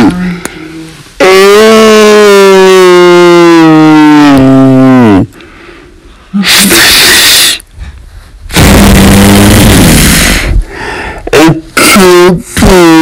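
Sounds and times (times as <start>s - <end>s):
person screaming: 1.2s - 5.1s.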